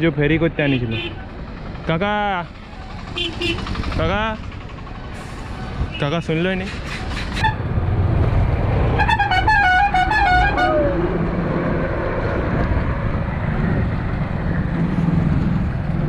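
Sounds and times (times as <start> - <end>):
road and traffic rumble: 0.0 - 16.0
musical vehicle horn tune: 9.0 - 10.9.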